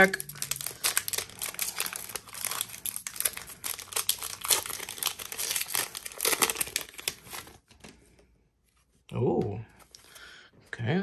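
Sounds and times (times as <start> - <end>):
plastic wrapper crinkling: 0.0 - 8.0.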